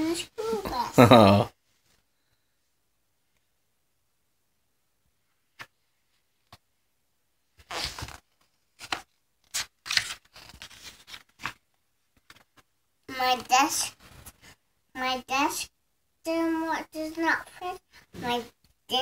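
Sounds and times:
cardboard pages rustling and flapping: 7.6 - 12.7.

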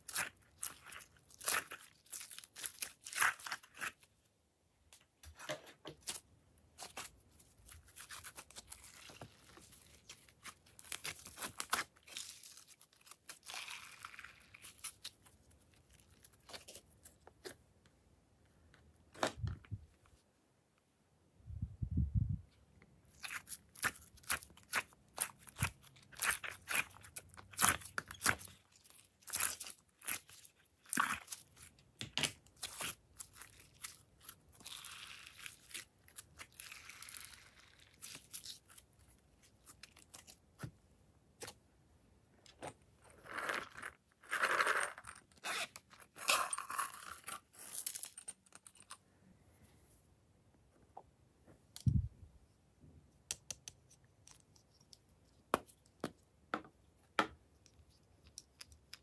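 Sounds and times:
slime stretching: 0.0 - 4.2, 6.0 - 17.5, 23.1 - 40.7.

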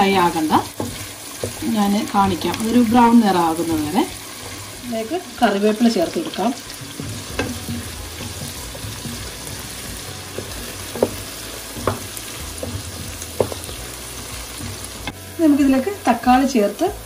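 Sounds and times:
vegetables sizzling in hot oil: 0.0 - 17.0
spatula tapping against pan: 6.8 - 15.2.

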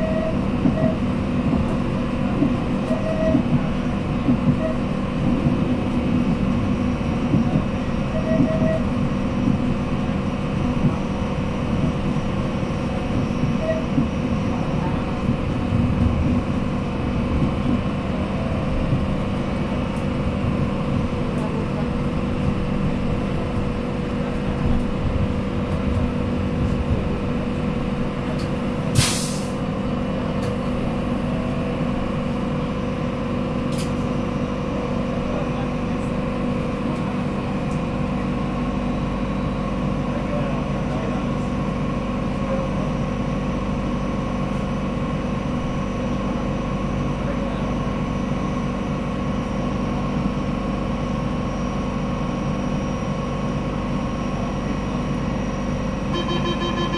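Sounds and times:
train rumble and hum: 0.0 - 56.9
short sharp hiss: 29.0 - 29.6.

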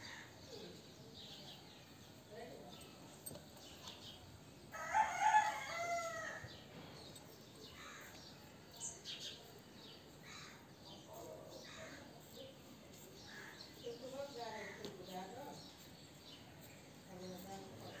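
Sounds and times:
rooster crowing: 4.8 - 6.5.

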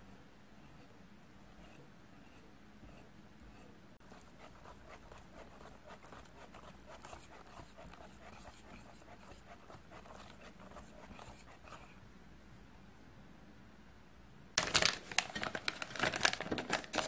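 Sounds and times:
whisk beating batter in bowl: 1.6 - 12.0.

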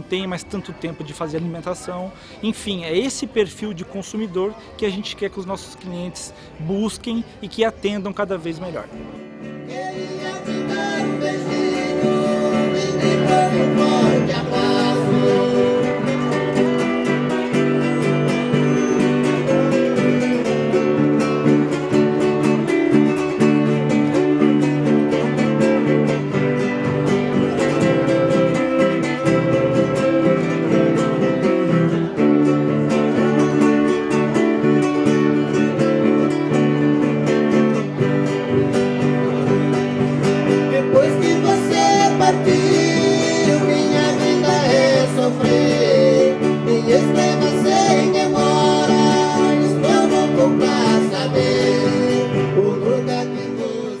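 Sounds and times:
strummed acoustic guitar: 0.0 - 54.0
person singing: 9.5 - 17.4, 40.7 - 54.0.

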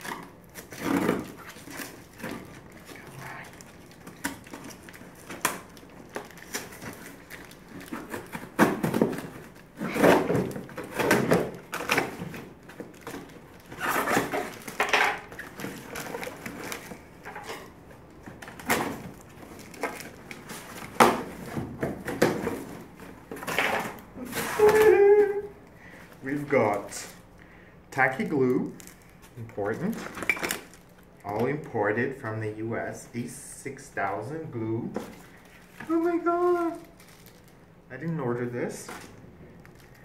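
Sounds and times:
cardboard rustling: 0.0 - 27.2.

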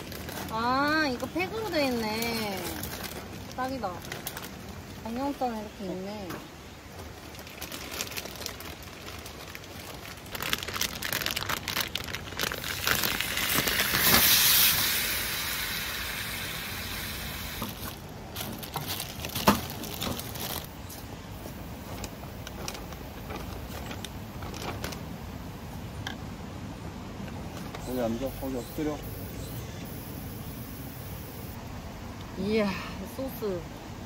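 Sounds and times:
plastic packaging crinkling: 0.0 - 5.2, 6.9 - 14.6, 17.6 - 20.8
hiss: 13.2 - 18.0, 28.2 - 31.6.

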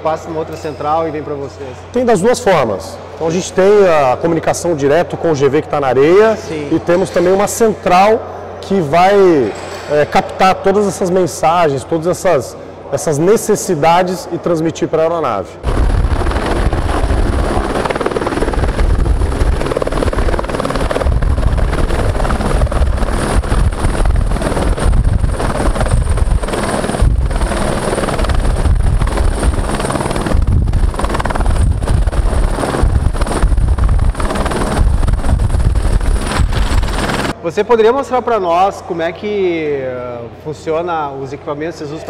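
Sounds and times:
helicopter rotor noise: 1.0 - 37.4
turbine whine: 15.5 - 37.4.

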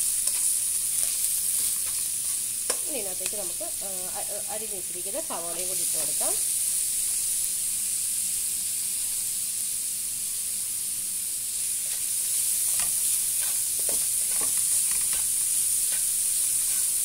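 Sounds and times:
onions sizzling in oil: 0.0 - 17.0
spatula scraping pan: 0.1 - 2.8, 11.8 - 17.0.

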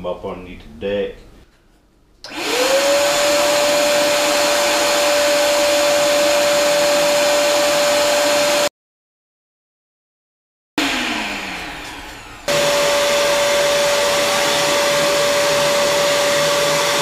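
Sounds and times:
shop vacuum motor whining: 2.2 - 8.7, 10.8 - 17.0.

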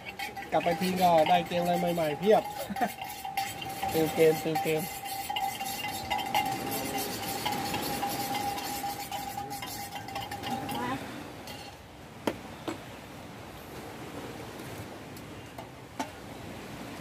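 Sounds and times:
spoon stirring: 0.0 - 10.9
cups and utensils clinking: 0.0 - 11.8.

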